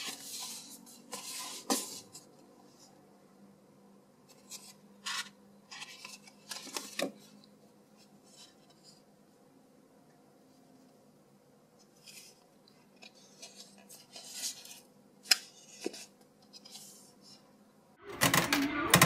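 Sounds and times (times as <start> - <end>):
paper rustling: 0.0 - 2.9, 4.3 - 7.4, 11.8 - 17.4.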